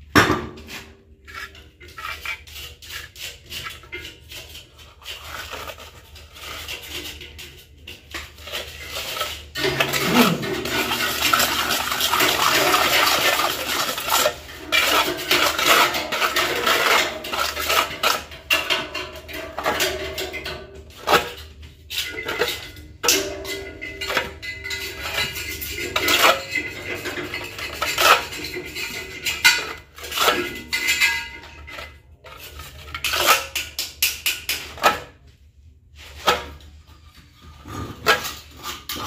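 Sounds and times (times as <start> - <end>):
trowel scraping mortar on metal: 0.6 - 19.9, 23.6 - 35.2.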